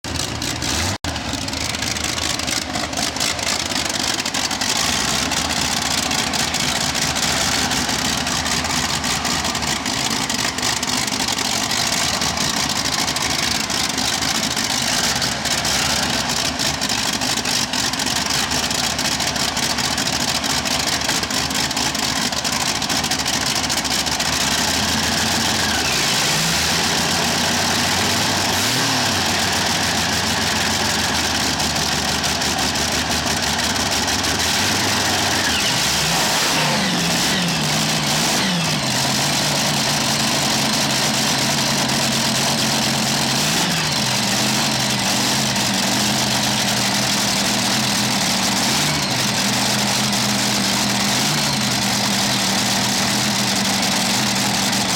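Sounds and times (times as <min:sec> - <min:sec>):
racing engine idling roughly: 0:00.0 - 0:54.9.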